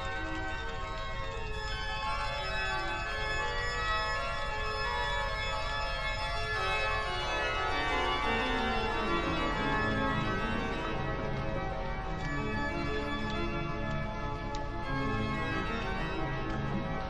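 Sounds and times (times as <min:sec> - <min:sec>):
organ chords: 0:07.6 - 0:17.0.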